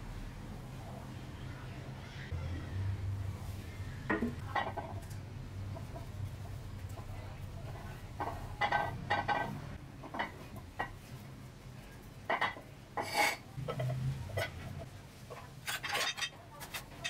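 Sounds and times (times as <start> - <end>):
brush scrubbing metal parts: 13.0 - 17.0.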